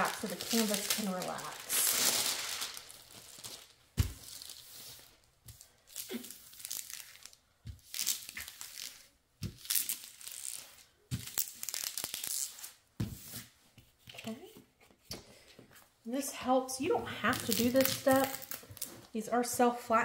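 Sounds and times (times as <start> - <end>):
plastic film crinkling: 0.0 - 12.8, 17.2 - 19.2.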